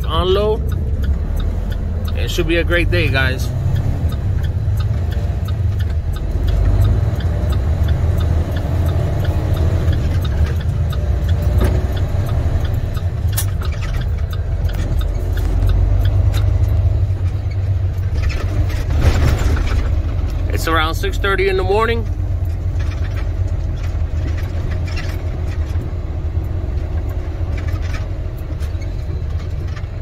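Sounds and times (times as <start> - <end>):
diesel truck engine rumbling: 0.0 - 30.0
light clicks and rattles: 7.4 - 30.0.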